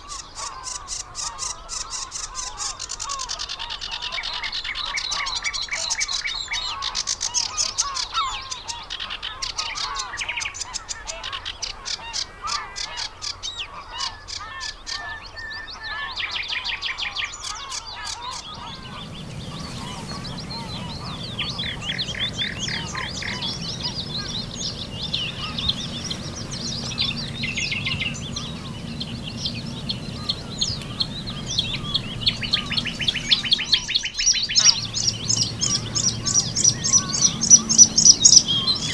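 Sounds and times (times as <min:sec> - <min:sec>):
songbirds singing: 0:00.0 - 0:38.9
low steady rumble: 0:18.4 - 0:38.9.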